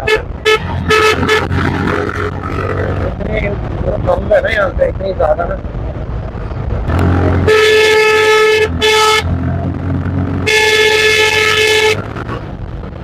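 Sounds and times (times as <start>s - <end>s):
vehicle horn blasts: 0.0s - 1.6s, 7.4s - 9.3s, 10.4s - 12.0s
motorcycle engine riding: 0.0s - 13.0s
wind at road speed: 0.0s - 13.0s.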